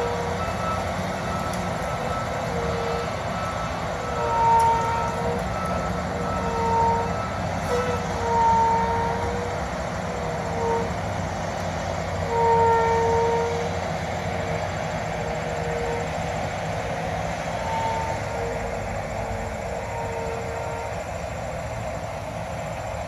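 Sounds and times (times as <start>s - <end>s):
heavy diesel traffic rumbling: 0.0s - 23.0s.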